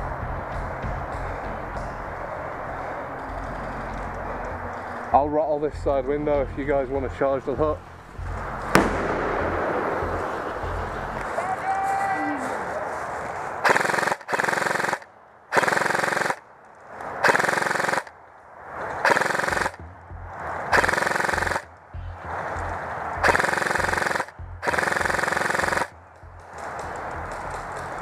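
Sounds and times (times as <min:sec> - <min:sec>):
airsoft rifle automatic bursts: 0:13.6 - 0:16.4, 0:17.2 - 0:18.1, 0:19.0 - 0:19.8, 0:20.7 - 0:21.6, 0:23.2 - 0:25.9.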